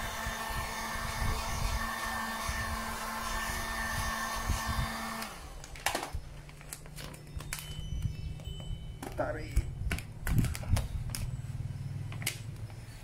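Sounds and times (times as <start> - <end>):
heat gun blowing with whine: 0.0 - 6.3.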